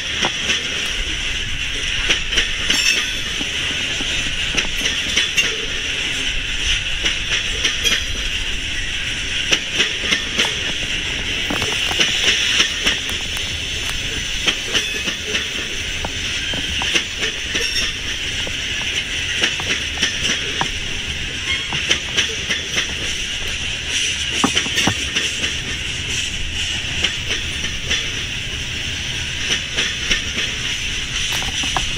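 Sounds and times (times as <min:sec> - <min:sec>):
freight train rolling past: 0:00.0 - 0:31.9
wheel clicks over rail joints: 0:02.0 - 0:05.7, 0:09.4 - 0:26.2, 0:29.5 - 0:31.9.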